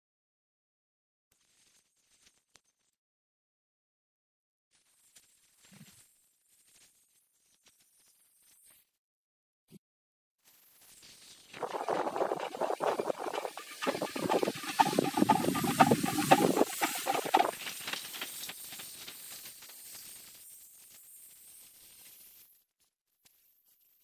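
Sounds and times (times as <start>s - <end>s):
steam locomotive hissing and puffing: 11.7s - 18.5s.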